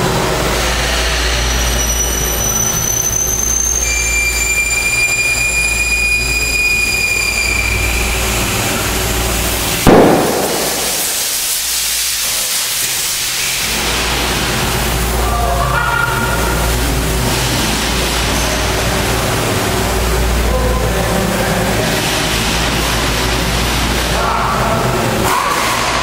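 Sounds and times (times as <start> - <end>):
workshop hum and hiss: 0.0 - 26.0
plastic jug bursting with bang: 9.8 - 11.5.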